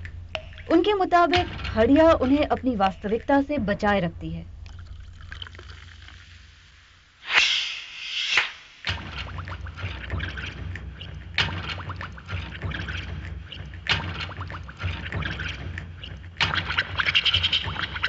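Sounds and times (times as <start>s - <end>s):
liquid pouring and splashing: 0.0s - 7.2s, 8.9s - 18.0s
steady low hum: 0.0s - 7.2s.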